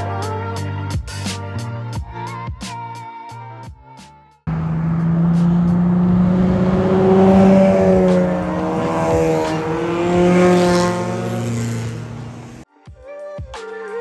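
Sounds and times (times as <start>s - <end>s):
cars passing with engines revving: 4.5s - 12.6s.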